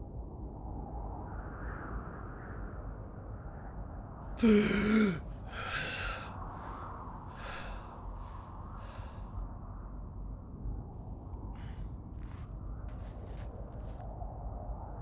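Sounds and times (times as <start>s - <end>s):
person gasping with voiced cry: 4.4s - 6.3s
person breathing noisily: 4.4s - 9.4s.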